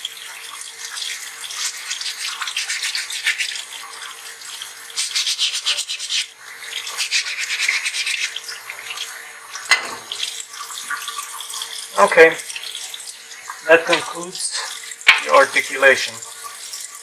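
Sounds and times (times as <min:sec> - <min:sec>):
running tap water: 0:00.0 - 0:17.0
wet sandpaper scrubbing: 0:01.6 - 0:03.6, 0:05.0 - 0:06.3, 0:07.0 - 0:08.4.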